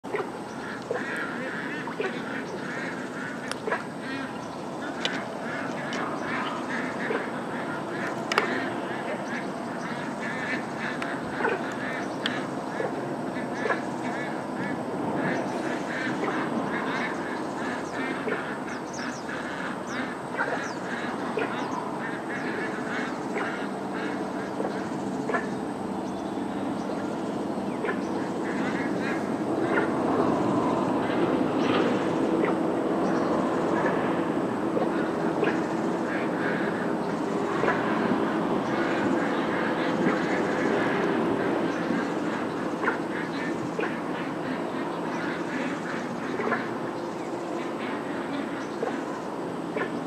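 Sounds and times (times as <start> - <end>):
chorus of animal calls: 0.0 - 50.0.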